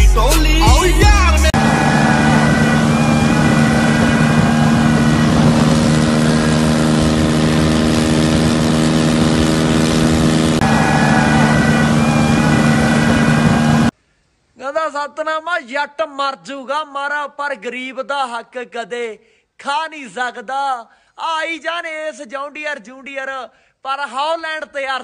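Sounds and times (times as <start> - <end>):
tractor diesel engine under load: 1.2 - 13.9.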